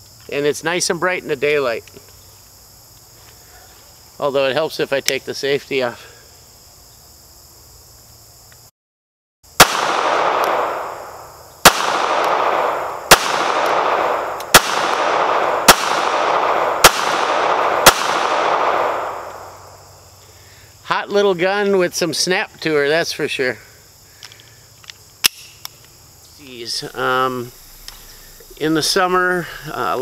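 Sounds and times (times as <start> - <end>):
pistol shots: 9.6 - 19.7.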